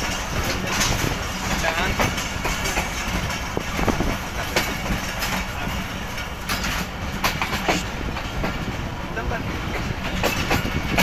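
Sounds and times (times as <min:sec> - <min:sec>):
train rumbling: 0:00.0 - 0:11.0
train wheel clicks: 0:00.0 - 0:11.0.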